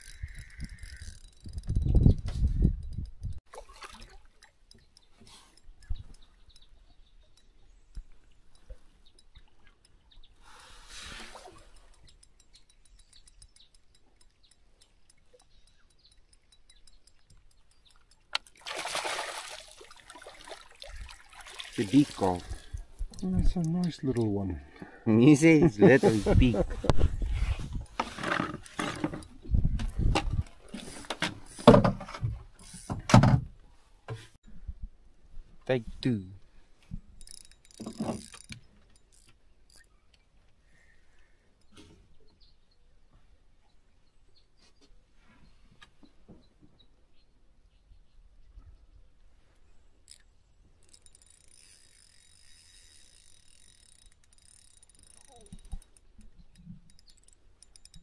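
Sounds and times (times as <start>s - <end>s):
fishing reel whirring: 0.0s - 2.0s, 37.2s - 39.9s, 50.1s - 58.0s.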